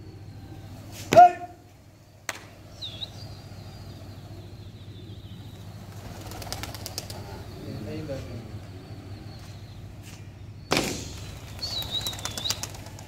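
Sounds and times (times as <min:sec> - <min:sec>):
pigeon wings flapping: 0:05.7 - 0:07.5, 0:10.7 - 0:13.0.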